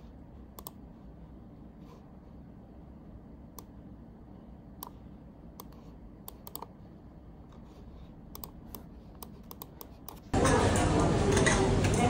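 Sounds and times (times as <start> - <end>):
low steady background hum: 0.0 - 12.0
laptop keyboard clicks: 5.6 - 6.7.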